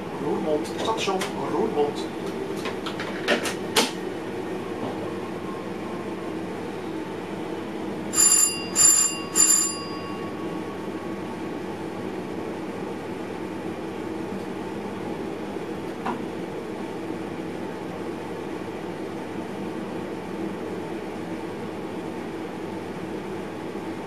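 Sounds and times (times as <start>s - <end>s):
train hum: 0.0s - 16.8s
electric bell ringing: 8.1s - 11.7s.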